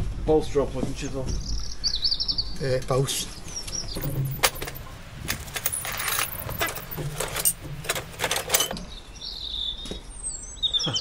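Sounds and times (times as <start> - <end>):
metal hand tools clinking: 4.0 - 8.8
work gloves rustling: 4.0 - 8.8.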